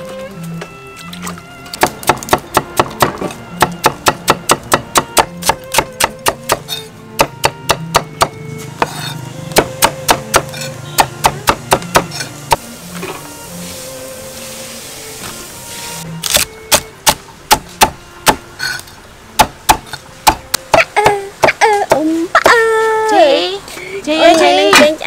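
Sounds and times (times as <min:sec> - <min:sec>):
soft background music: 0:00.0 - 0:25.0
cleaver chopping carrot on board: 0:01.8 - 0:12.6.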